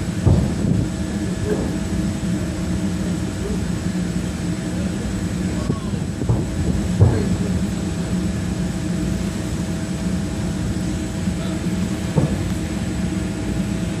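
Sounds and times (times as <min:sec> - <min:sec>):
low engine drone: 0:00.0 - 0:14.0
distant firework booms: 0:12.1 - 0:12.6.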